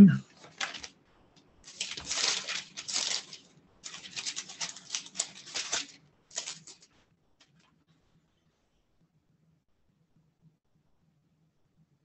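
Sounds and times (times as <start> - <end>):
paper pages rustling: 0.3 - 1.0, 1.6 - 7.8.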